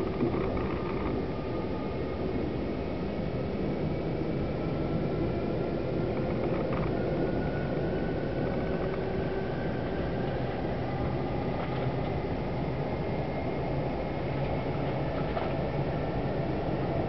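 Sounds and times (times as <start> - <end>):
faint high whine: 0.0 - 17.0
train rumble and road noise: 0.0 - 17.0.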